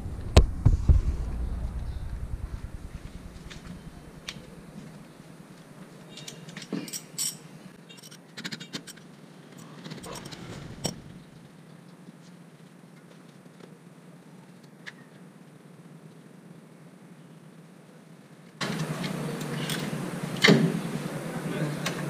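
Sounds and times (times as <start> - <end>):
metal hand tools clinking: 6.1 - 9.0.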